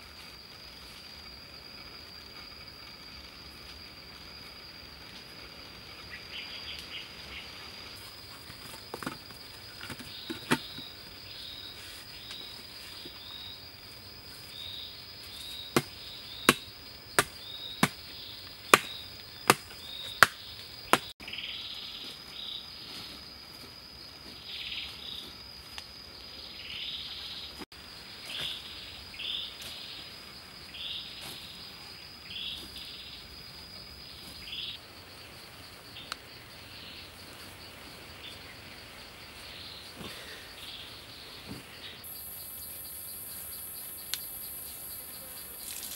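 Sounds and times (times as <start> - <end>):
insect drone: 0.0 - 45.9
soil scraping and swishing: 7.8 - 16.6
hoe striking soil: 8.3 - 11.0, 15.2 - 21.1.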